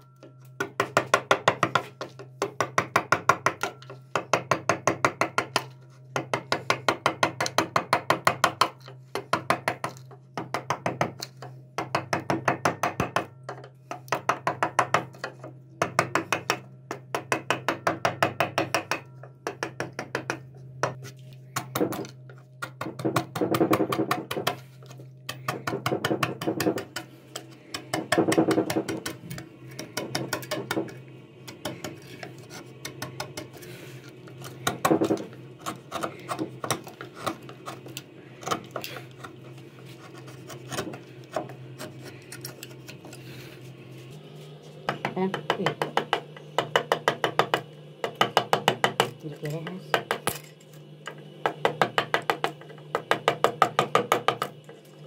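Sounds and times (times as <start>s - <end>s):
steady low hum: 0.0s - 55.0s
hammer tapping chisel into wood: 0.6s - 21.0s, 25.3s - 27.0s, 44.9s - 49.2s, 51.5s - 54.5s
chisel scraping wood: 33.4s - 44.1s.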